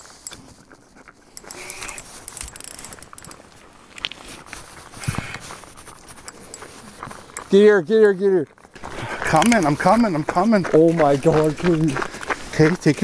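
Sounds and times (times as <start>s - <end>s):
fishing reel clicking and ratcheting: 1.3s - 3.4s.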